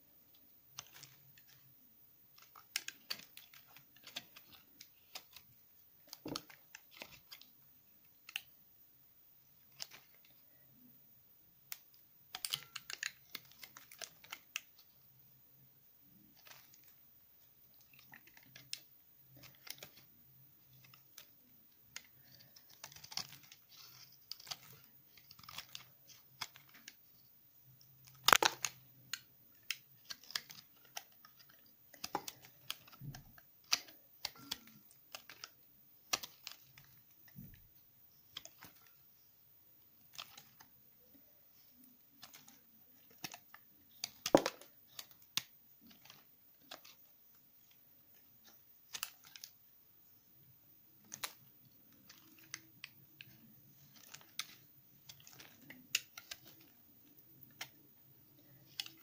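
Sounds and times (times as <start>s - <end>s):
knife shaving soap crackling: 0.7s - 1.7s, 2.3s - 7.5s, 11.7s - 14.9s, 17.7s - 27.2s, 28.0s - 37.4s, 41.6s - 49.6s, 51.0s - 59.0s
sharp soap crack: 2.3s - 7.5s, 11.7s - 14.8s, 20.7s - 27.0s, 28.0s - 37.5s, 41.8s - 47.7s, 48.4s - 49.6s, 51.0s - 59.0s.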